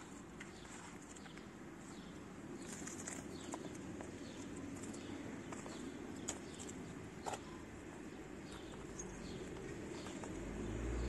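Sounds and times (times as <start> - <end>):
low background noise: 0.0 - 11.0.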